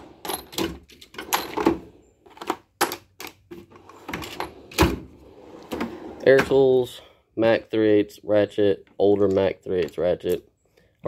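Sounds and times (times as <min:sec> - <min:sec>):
metal toolbox drawers opening and shutting: 0:00.0 - 0:06.8.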